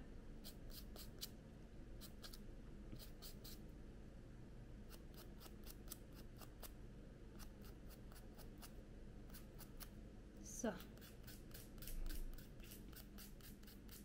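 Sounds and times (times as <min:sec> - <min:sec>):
nail file rasping: 0:00.4 - 0:01.4, 0:02.0 - 0:02.4, 0:03.0 - 0:03.6, 0:04.9 - 0:06.8, 0:07.4 - 0:10.0, 0:10.8 - 0:14.0.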